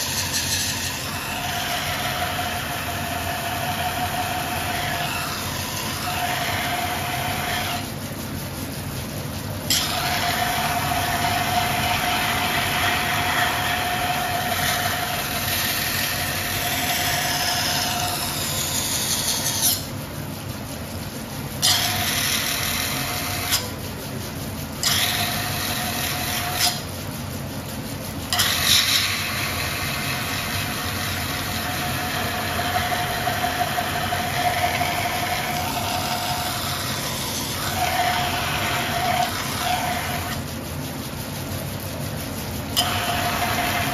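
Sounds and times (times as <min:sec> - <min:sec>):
grinding wheel humming: 0:00.0 - 0:08.0, 0:09.6 - 0:20.0, 0:21.4 - 0:24.1, 0:24.7 - 0:26.9, 0:28.2 - 0:41.6, 0:42.2 - 0:43.9
steel grinding with squeal: 0:00.0 - 0:08.5, 0:09.6 - 0:20.0, 0:21.6 - 0:23.8, 0:24.8 - 0:27.0, 0:28.2 - 0:40.7, 0:42.7 - 0:43.9.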